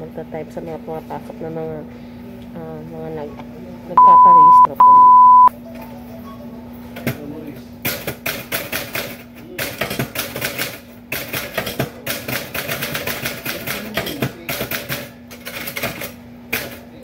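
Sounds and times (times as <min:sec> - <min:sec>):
typewriter keys striking: 0:07.8 - 0:16.8.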